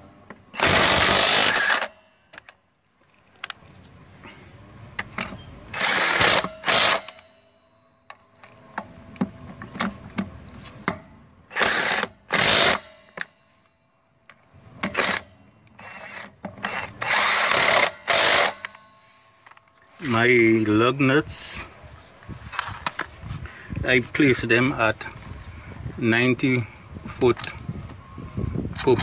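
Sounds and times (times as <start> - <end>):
impact wrench hammering lug nuts: 0.6 - 2.5, 5.8 - 7.2, 10.9 - 13.3, 14.8 - 19.0.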